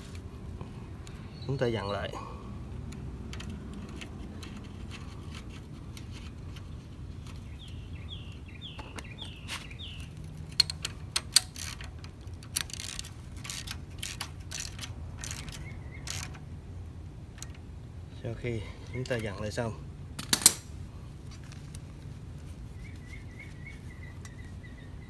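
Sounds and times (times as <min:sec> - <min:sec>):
socket wrench clicking: 0:02.9 - 0:07.8, 0:10.0 - 0:16.5.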